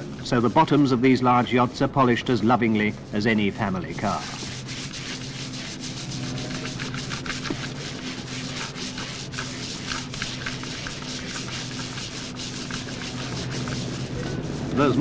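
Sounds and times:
polisher clicking and rubbing: 3.2s - 15.0s
power polisher motor hum: 4.4s - 14.8s.

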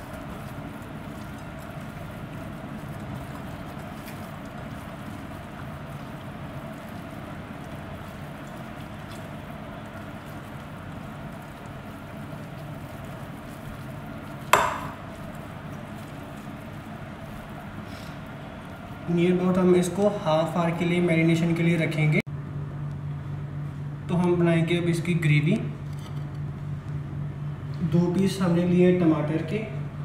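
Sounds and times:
hands squishing wet food: 0.0s - 20.6s
steady low hum: 0.0s - 30.0s
sharp knock: 14.6s - 15.0s.

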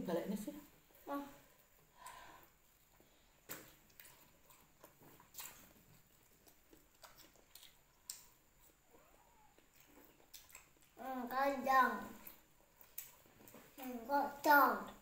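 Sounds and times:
mouth sounds eating: 2.8s - 14.2s.

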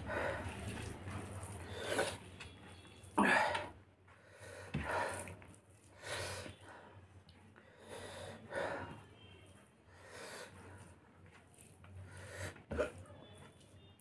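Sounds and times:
man breathing sharply and sniffing: 3.3s - 9.2s, 9.9s - 11.0s, 12.0s - 12.7s.

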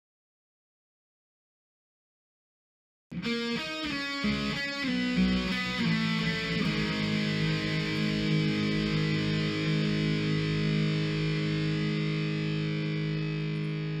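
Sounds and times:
distorted electric guitar chord: 3.2s - 14.0s.

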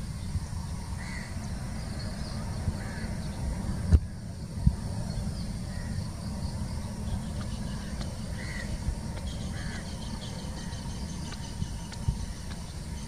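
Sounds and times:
distant jet airliner rumble: 0.0s - 13.0s
crow cawing: 1.0s - 1.3s, 2.8s - 3.1s, 8.3s - 8.8s, 9.5s - 9.9s.

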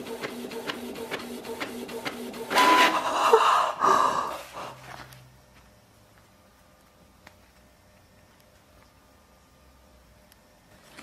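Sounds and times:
printer clicking: 0.0s - 3.0s
printer feeding page out: 0.0s - 3.0s
printer low hum: 0.0s - 6.0s.

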